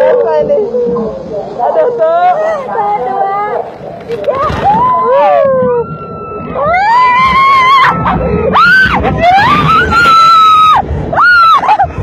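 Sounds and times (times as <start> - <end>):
people screaming on a ride: 4.4 - 12.0.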